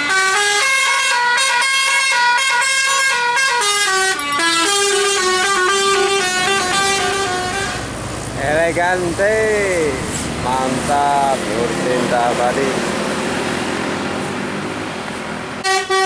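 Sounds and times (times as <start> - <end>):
musical air horns playing melody: 0.0 - 8.0, 15.6 - 16.0.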